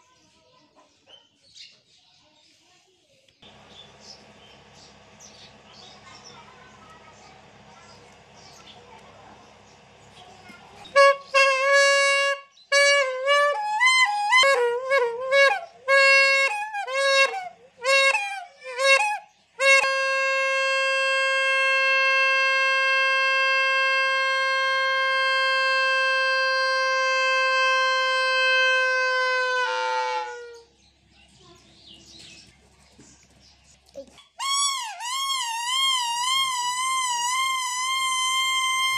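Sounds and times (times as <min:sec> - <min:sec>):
plastic trumpet horn honking: 0:10.4 - 0:30.6, 0:34.4 - 0:38.9.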